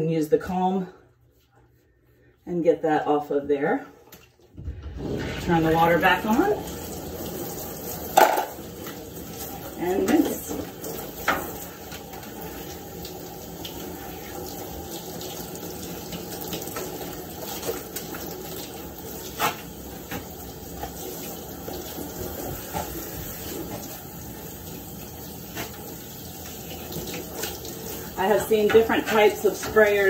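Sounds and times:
water splashing into bathtub: 3.9 - 30.0
water spraying from shower head: 5.0 - 30.0.

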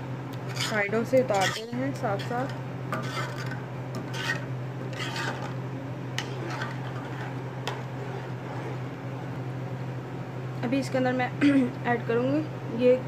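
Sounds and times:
steady low hum: 0.0 - 13.0
spoon stirring and scraping pot: 0.4 - 9.0.

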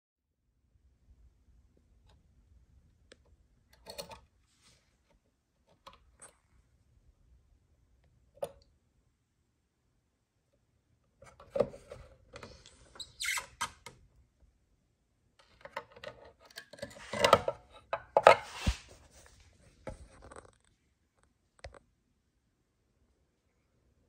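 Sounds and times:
objects being handled: 15.4 - 20.7.

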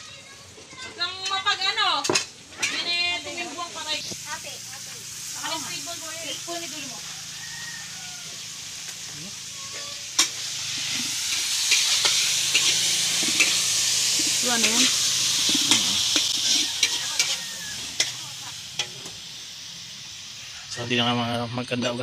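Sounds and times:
hot oil sizzling in a wok: 0.0 - 22.0
metal ladle scraping a pan: 9.5 - 18.2.

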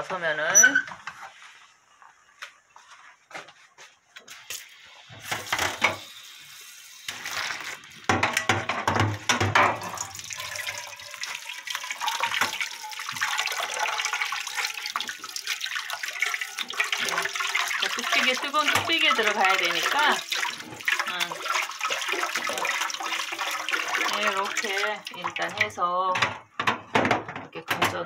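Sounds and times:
water poured into metal sink: 4.3 - 26.3
kitchen tap running: 4.3 - 28.0
pots clicking and knocking: 8.1 - 10.8, 16.6 - 20.2, 25.4 - 28.0.

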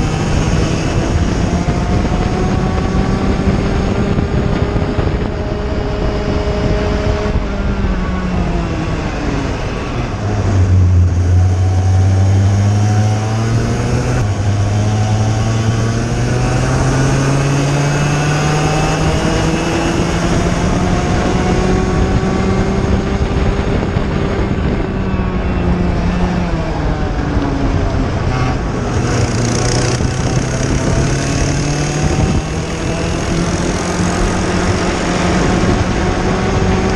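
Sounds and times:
kart engine revving: 0.0 - 36.9
wind noise on microphone: 0.0 - 36.9.

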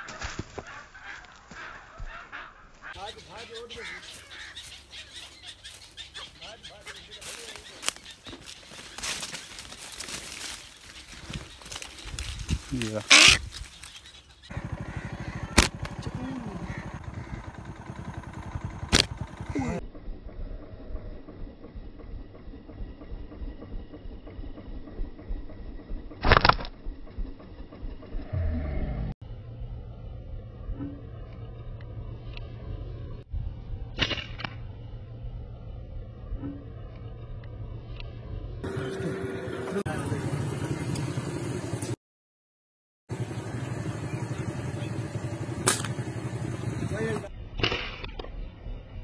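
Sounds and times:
low rumble: 14.5 - 42.0
slingshot snap: 45.6 - 46.0.

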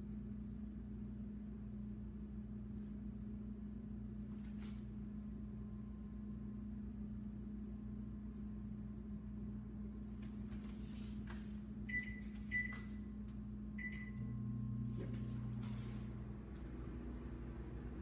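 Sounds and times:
deeper hum: 0.0 - 18.0
steady low hum: 0.0 - 18.0
oven keypad beeps: 11.9 - 13.0, 13.8 - 14.4.

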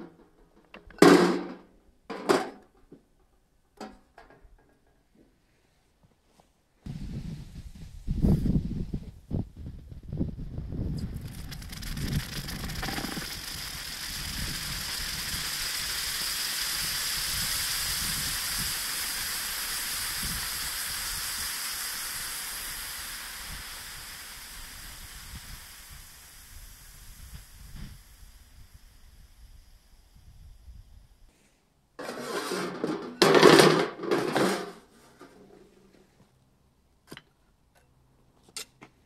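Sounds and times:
hot metal sizzling on ice: 10.8 - 30.8.

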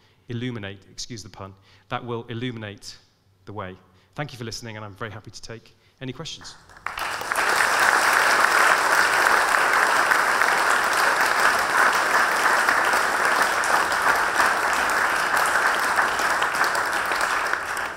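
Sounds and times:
audience applauding: 6.6 - 17.9.

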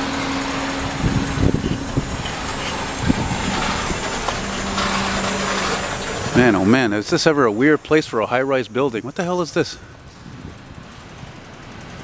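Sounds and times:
bicycle road noise on pavement: 0.0 - 12.0
steady low hum: 0.0 - 12.0
low thumps: 0.3 - 6.9
wind on microphone: 0.7 - 4.7.

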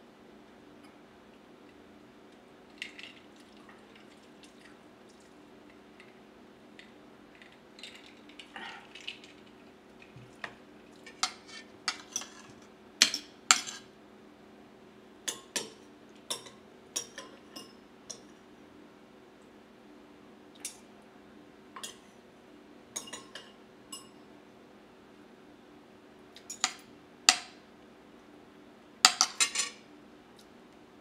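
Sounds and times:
fork clinking on ceramic plate: 29.1 - 29.8.

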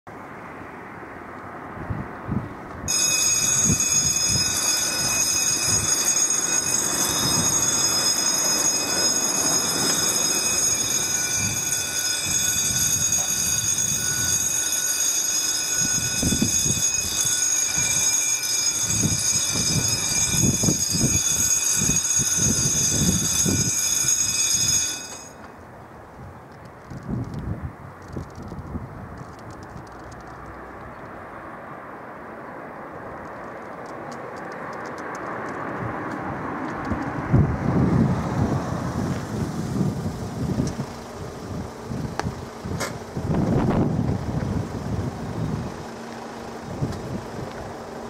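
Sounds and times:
level crossing warning bell: 2.9 - 25.7, 38.2 - 48.0.

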